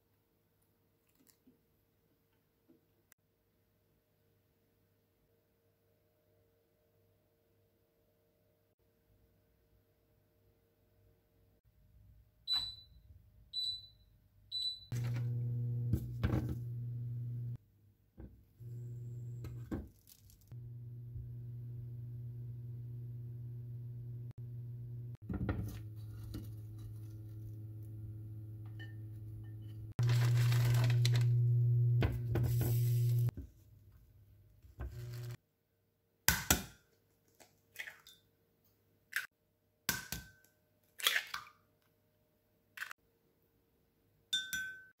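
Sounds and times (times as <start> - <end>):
cooktop touch control beeps: 12.5 - 13.0, 13.6 - 15.3
electrical hum of hob: 14.9 - 17.6, 18.6 - 19.7, 20.6 - 33.3, 34.8 - 35.4.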